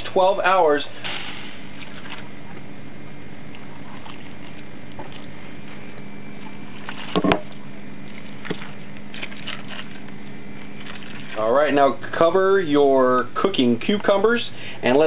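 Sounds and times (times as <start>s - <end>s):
liquid pouring and splashing: 1.1s - 2.6s, 3.5s - 5.5s, 6.4s - 11.5s.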